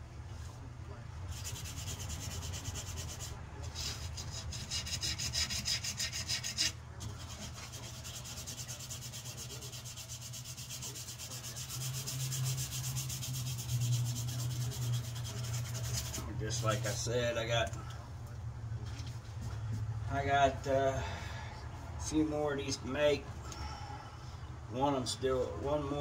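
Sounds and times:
sandpaper rubbing on knife: 1.3s - 16.9s.

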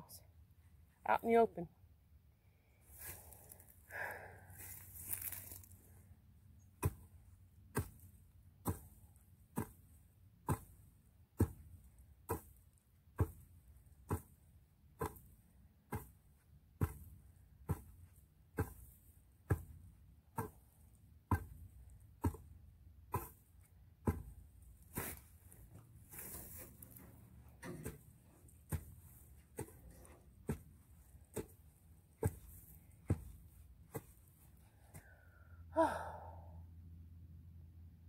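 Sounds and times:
hoe chopping into soil: 6.7s - 34.7s.

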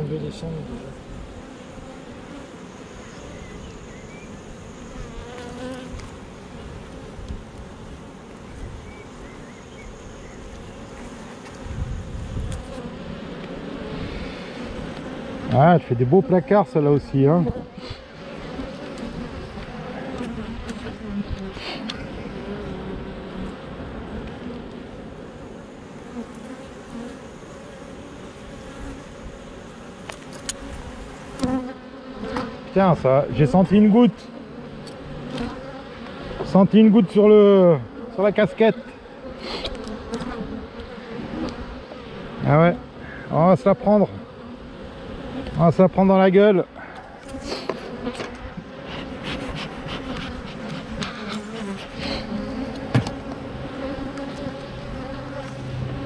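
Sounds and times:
honey bees buzzing: 0.0s - 56.0s
hive tool clicking on wood: 30.0s - 30.7s, 52.7s - 53.5s.

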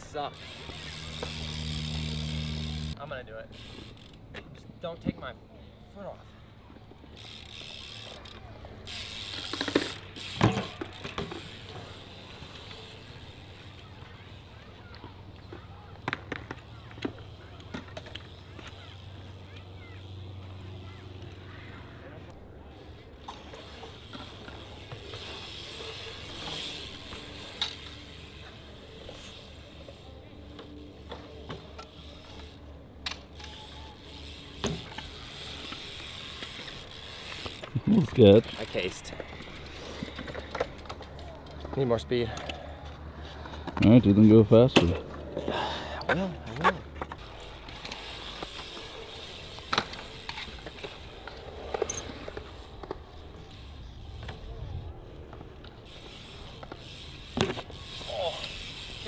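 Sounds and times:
bicycle freewheel ticking: 0.0s - 4.9s, 7.1s - 14.6s, 16.4s - 21.8s, 22.6s - 30.1s, 31.0s - 42.1s, 47.1s - 54.6s, 55.8s - 59.0s
bike tyre hiss on concrete: 8.9s - 10.6s, 55.9s - 59.0s.

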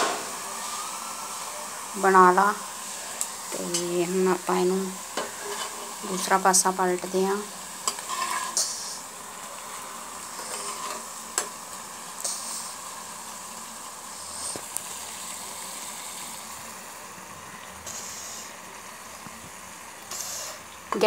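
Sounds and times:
frying sizzle in a pan: 0.0s - 21.0s
metal utensil clicking and scraping pan: 5.2s - 6.0s, 7.8s - 9.0s, 10.4s - 11.6s.

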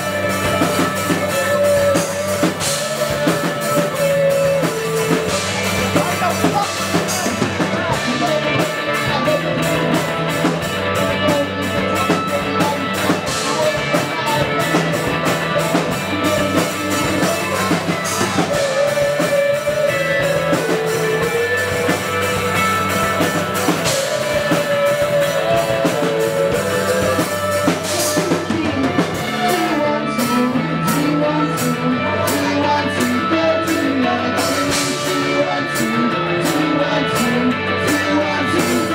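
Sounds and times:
bass guitar: 0.0s - 38.9s
drum kit beat: 0.0s - 38.9s
electric guitars: 0.0s - 38.9s.

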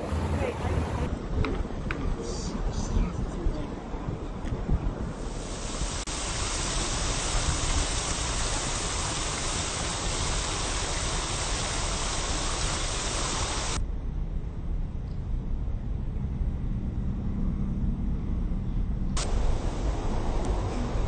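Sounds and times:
street traffic rumble: 0.0s - 6.2s, 8.4s - 21.0s
fountain jets splashing: 5.2s - 13.8s, 19.2s - 21.0s.

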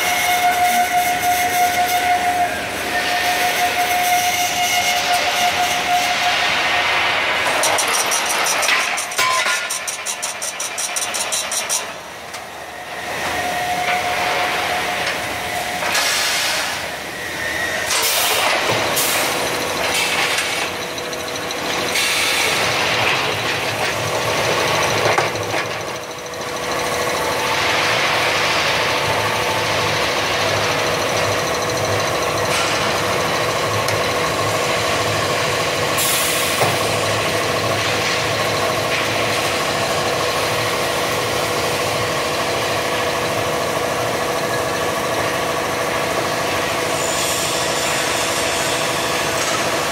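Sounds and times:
machine hissing surges: 2.6s - 9.2s, 12.5s - 38.4s, 45.5s - 49.9s
threading machine drone: 5.2s - 49.9s.

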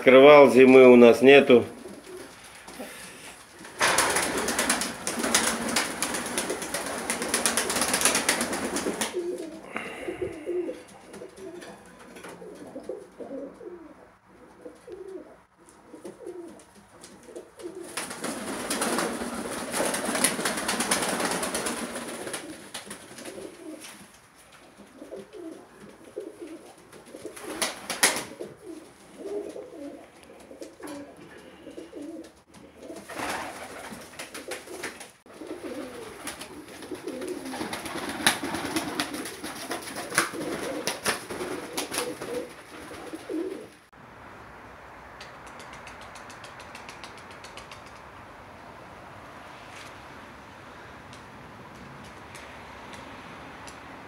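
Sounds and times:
pigeons cooing: 1.5s - 43.8s
wings flapping: 1.7s - 13.8s, 15.9s - 43.8s, 45.2s - 48.2s
sharp wing clap: 3.8s - 9.2s, 17.9s - 23.9s, 27.3s - 28.4s, 37.2s - 42.9s, 45.2s - 48.1s.

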